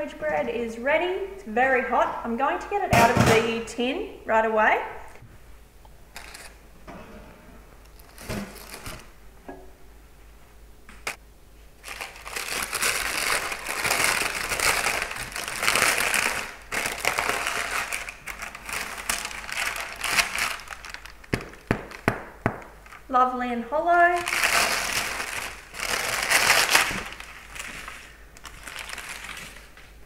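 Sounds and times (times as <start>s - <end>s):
crinkling and scraping: 6.1s - 6.6s, 7.8s - 9.1s, 11.0s - 22.0s, 24.2s - 30.0s.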